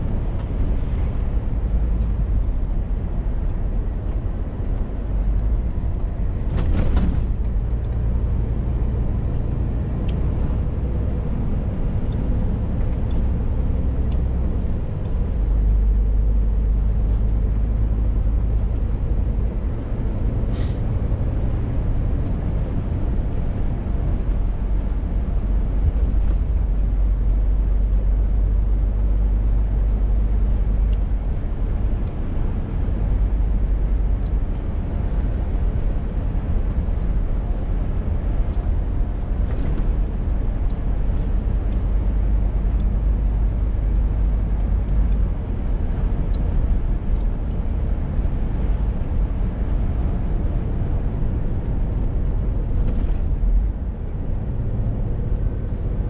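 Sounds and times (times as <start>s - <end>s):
diesel lorry engine drone: 0.0s - 56.0s
road noise: 0.0s - 56.0s.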